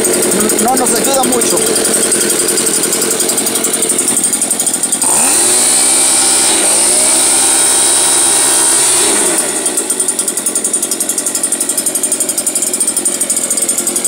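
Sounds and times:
leaf blower engine revving: 0.0 - 14.0.

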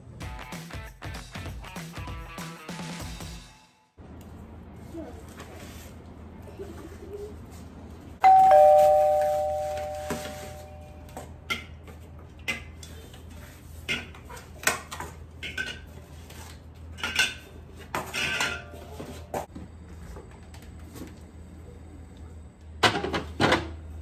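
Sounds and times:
two-note doorbell chime: 8.2 - 11.1.

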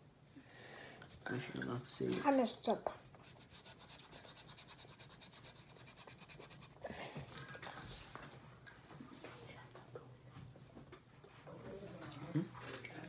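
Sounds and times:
pencil scratching on paper: 3.2 - 6.8
rubbing strokes across paper: 3.2 - 6.8.

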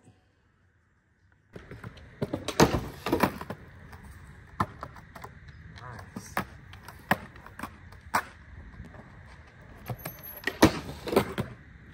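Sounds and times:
skateboard rolling on concrete: 1.2 - 11.9
skateboard landing on rail: 1.6 - 3.6, 9.9 - 11.6
skateboard clacks: 1.6 - 9.1, 9.7 - 11.6.

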